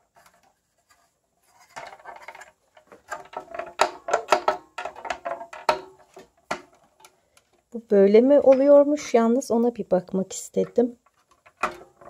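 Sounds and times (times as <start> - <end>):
hard plastic knocks and rattles: 1.6 - 7.1, 10.6 - 12.0.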